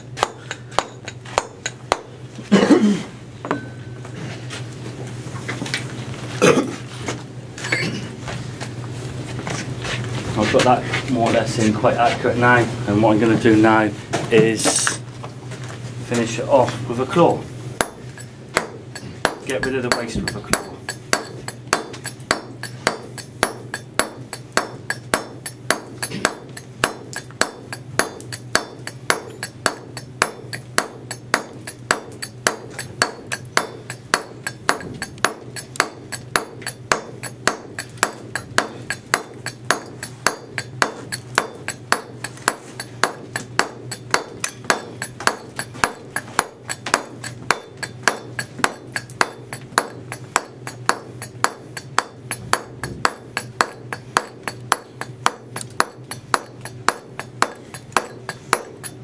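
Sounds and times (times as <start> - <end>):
mallet striking chisel on stone: 0.0 - 2.1, 3.5 - 4.0, 17.8 - 59.0.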